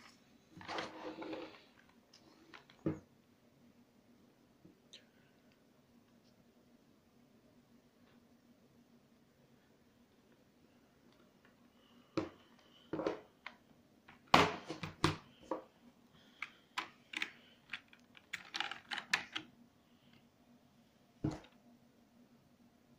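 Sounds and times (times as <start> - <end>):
plastic keyboard clicks and knocks: 16.4 - 19.5.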